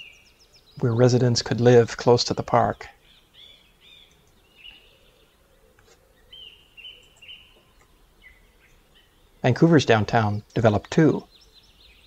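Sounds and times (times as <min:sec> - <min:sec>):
faint bird chirps: 0:00.0 - 0:01.4, 0:02.6 - 0:09.6, 0:10.5 - 0:12.0.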